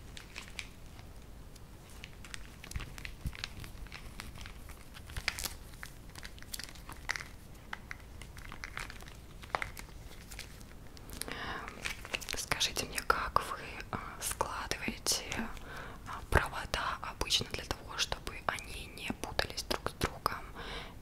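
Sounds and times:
cable rustling: 0:00.0 - 0:12.6.

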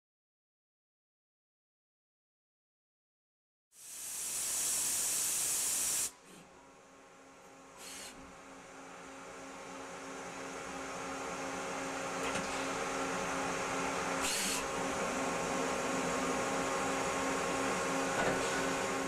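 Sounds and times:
short hissing bursts: 0:03.8 - 0:06.3
lathe machine hum: 0:08.4 - 0:19.0.

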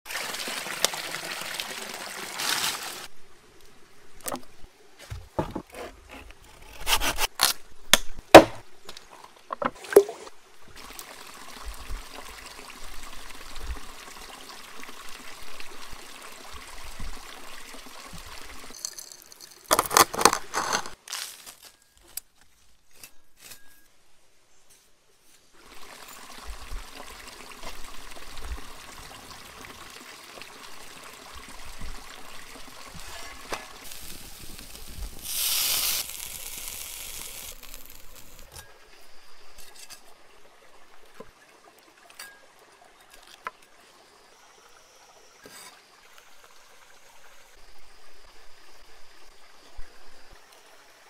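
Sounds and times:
running water splashing over chicken: 0:00.1 - 0:03.1.

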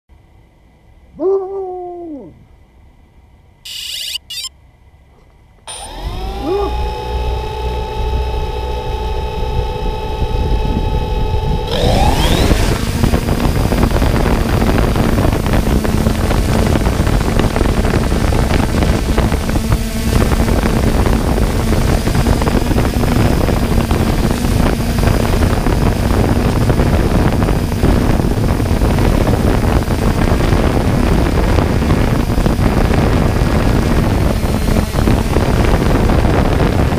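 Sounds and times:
drone motors humming: 0:03.7 - 0:04.5, 0:05.6 - 0:36.9
drone motors revving whine: 0:03.7 - 0:04.5, 0:05.7 - 0:36.9.

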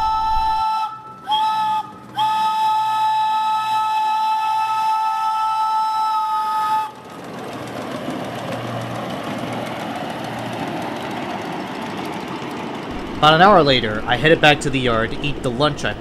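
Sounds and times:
steam locomotive chime whistle: 0:00.0 - 0:07.0
locomotive rushing past on rails: 0:00.0 - 0:16.0.

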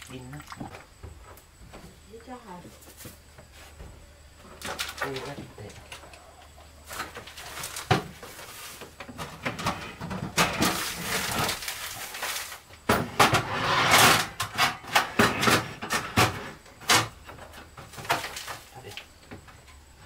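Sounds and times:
plastic bag rustling: 0:06.8 - 0:09.0, 0:10.5 - 0:12.7.

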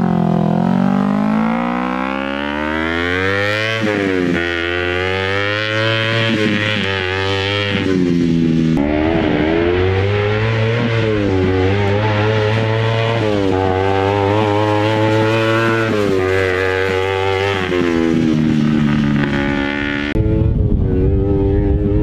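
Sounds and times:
buggy engine revving: 0:00.0 - 0:22.0.

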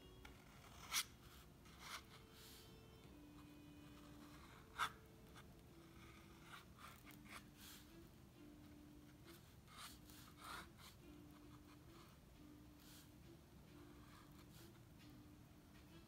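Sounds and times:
pen nib scratching paper: 0:00.2 - 0:02.6, 0:03.8 - 0:07.9, 0:09.3 - 0:12.1.

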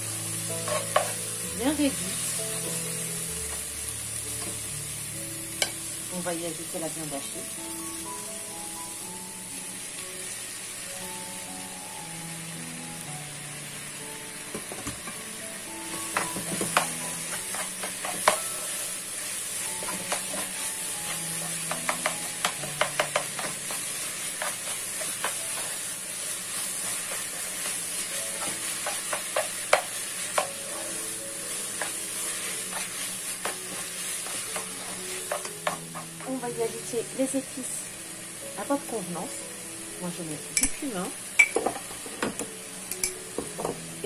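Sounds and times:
meat sizzling in oil: 0:00.0 - 0:44.0.

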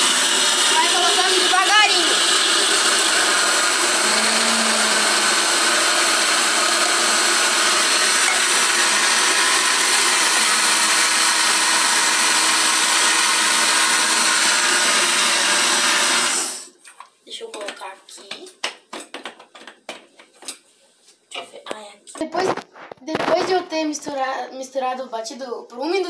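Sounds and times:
blender motor running: 0:00.0 - 0:16.7.

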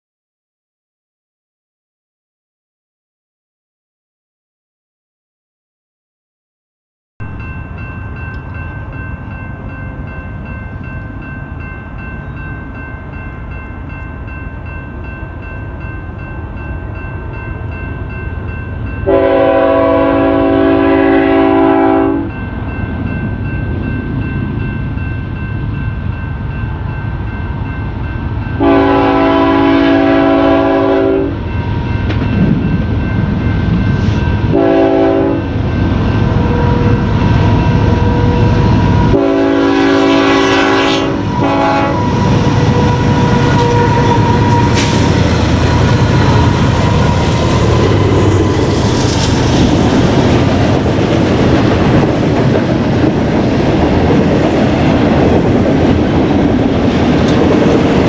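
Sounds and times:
train engines and wheels rumbling: 0:07.2 - 0:58.0
locomotive air horn blasts: 0:19.0 - 0:22.3, 0:28.6 - 0:31.4, 0:34.5 - 0:35.5, 0:39.1 - 0:46.6.

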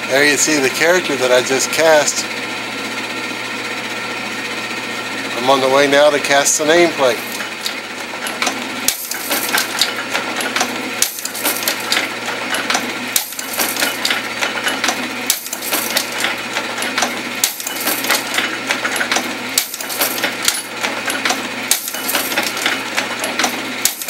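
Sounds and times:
typecasting machine clattering: 0:05.6 - 0:24.0.

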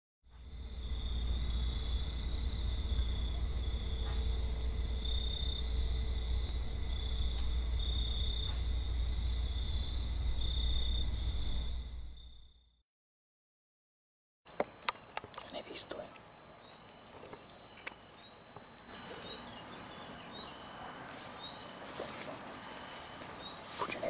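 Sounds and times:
low rumble: 0:00.3 - 0:12.5
insects chirring: 0:00.4 - 0:12.6, 0:14.5 - 0:24.0.

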